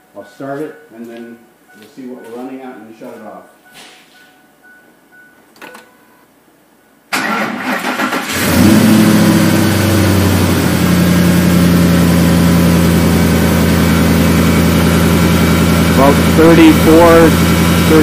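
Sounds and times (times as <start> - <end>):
car engine starting and idling: 7.1 - 18.0.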